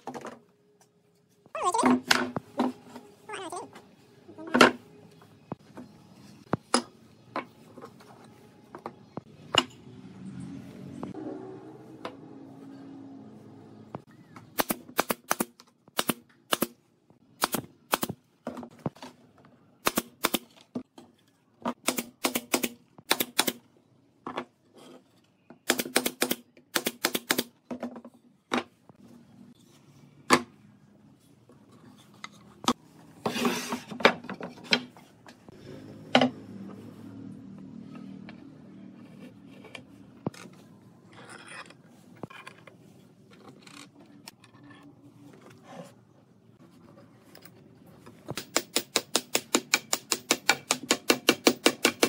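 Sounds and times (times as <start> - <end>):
nail gun shots: 14.6 - 16.8, 21.8 - 23.6, 25.6 - 27.5.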